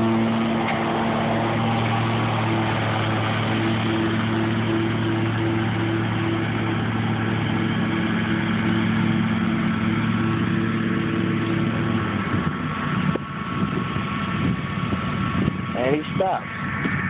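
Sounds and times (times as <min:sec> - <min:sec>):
ride-on mower engine running: 0:00.0 - 0:17.0.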